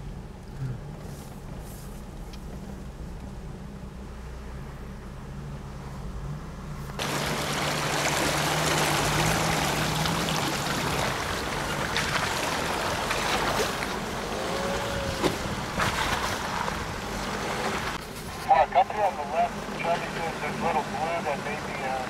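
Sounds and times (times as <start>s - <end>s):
jeep engine: 0.0s - 22.0s
water splashing against vehicle: 7.0s - 22.0s.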